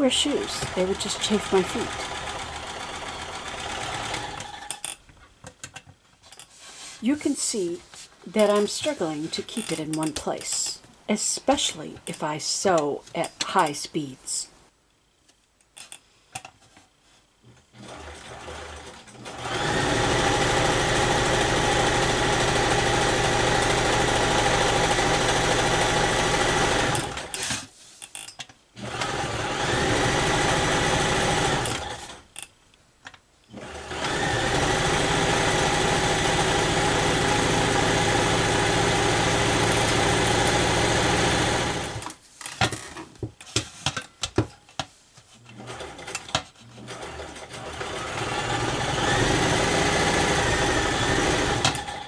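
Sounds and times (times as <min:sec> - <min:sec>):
electric sewing machine running: 0:00.2 - 0:04.8, 0:17.7 - 0:27.3, 0:28.8 - 0:32.2, 0:33.6 - 0:42.0, 0:46.8 - 0:52.0.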